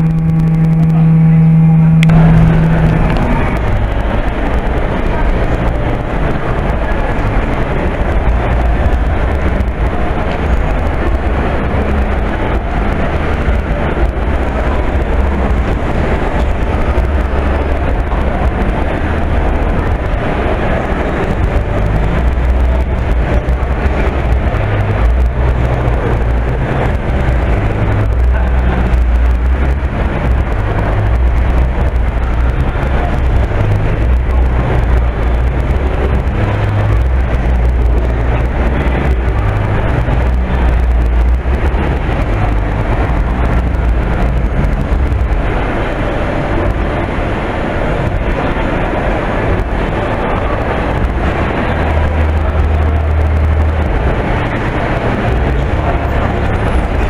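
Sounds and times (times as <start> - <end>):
indoor hall noise: 0.0 - 57.0
low rumble: 0.0 - 57.0.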